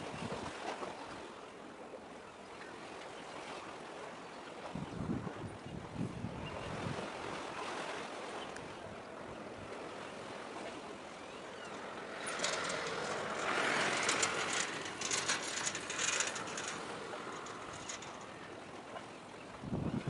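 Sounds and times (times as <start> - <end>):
surf at shoreline: 0.0 - 20.0
wind: 0.0 - 20.0
dense crackling clicks: 11.7 - 18.6.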